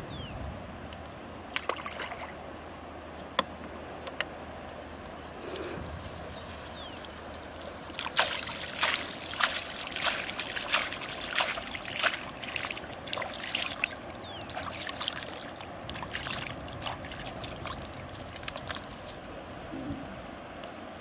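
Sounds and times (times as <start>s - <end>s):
water trickling: 6.8s - 21.0s
hands splashing in water: 7.6s - 19.2s.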